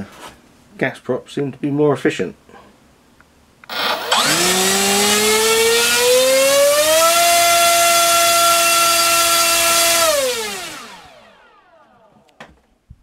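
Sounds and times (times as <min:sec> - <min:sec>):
electric motor propeller whine: 0:03.7 - 0:12.4.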